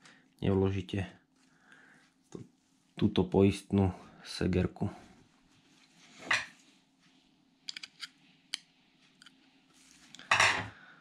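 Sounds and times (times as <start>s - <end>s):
metal parts clicking: 7.7s - 8.1s.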